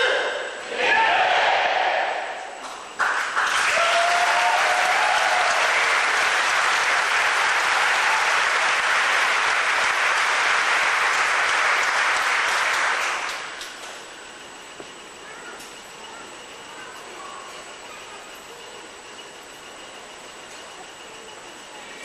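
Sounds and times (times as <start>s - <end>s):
audience applauding: 3.0s - 13.8s.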